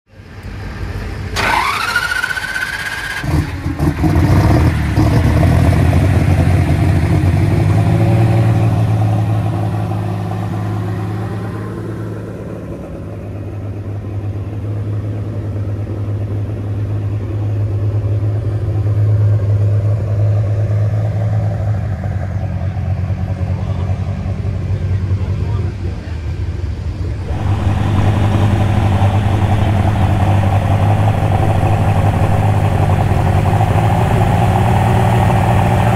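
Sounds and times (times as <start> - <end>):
diesel engine running: 0.1 - 25.6, 27.0 - 35.9
starter whine: 1.3 - 3.4, 27.2 - 35.9.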